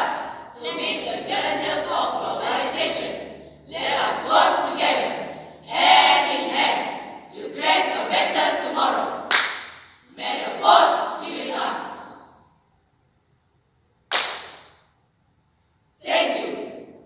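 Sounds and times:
group declaiming in unison: 0:00.0 - 0:09.2, 0:10.1 - 0:12.4, 0:16.0 - 0:16.9.

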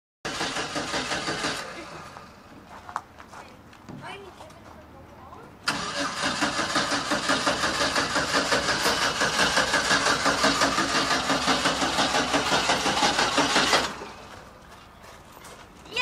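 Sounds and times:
engine cranking on starter: 0:00.3 - 0:02.4, 0:05.6 - 0:14.5.

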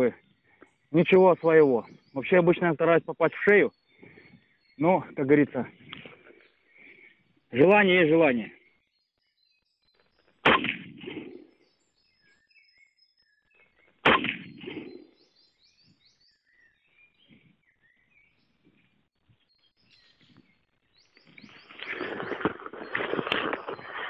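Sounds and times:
small birds chirping: 0:00.0 - 0:24.0
rifle shot with echo: 0:10.4 - 0:11.5, 0:14.0 - 0:15.1
rustling noise: 0:21.2 - 0:24.0.

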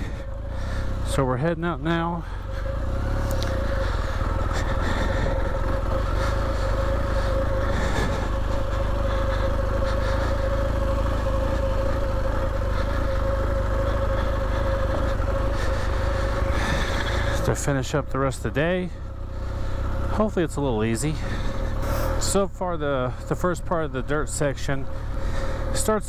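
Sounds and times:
motorcycle engine running: 0:00.0 - 0:26.0.

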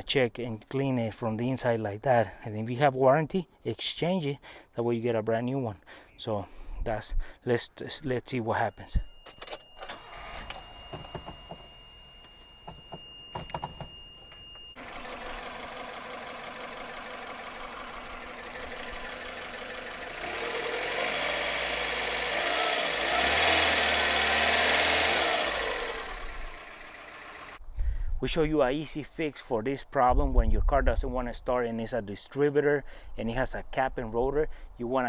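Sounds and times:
car engine running and revving: 0:14.8 - 0:27.6.

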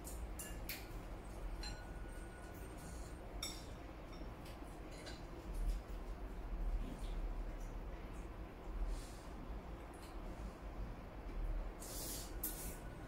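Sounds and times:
chopsticks clinking on ceramic bowls: 0:01.6 - 0:02.7.

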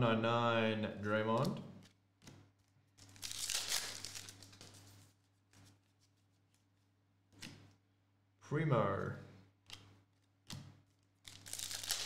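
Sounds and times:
foil wrapper tearing: 0:03.1 - 0:04.7, 0:11.2 - 0:12.0.

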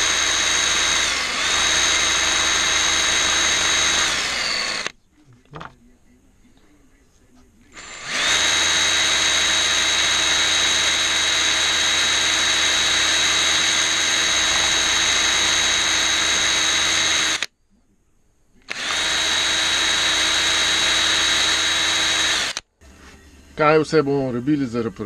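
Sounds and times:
power drill whining: 0:00.0 - 0:04.9, 0:07.7 - 0:17.5, 0:18.7 - 0:22.7.

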